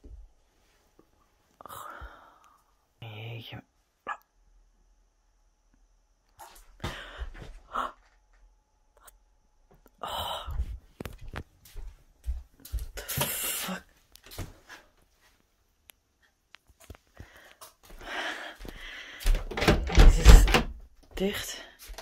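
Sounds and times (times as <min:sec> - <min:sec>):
breaths: 0:01.6 - 0:02.8, 0:06.8 - 0:08.1, 0:17.1 - 0:19.5.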